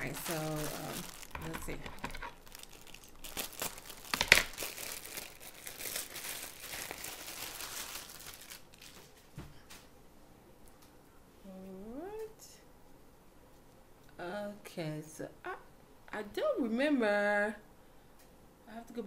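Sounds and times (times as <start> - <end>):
plastic bag crinkling and tearing: 0.0 - 9.2.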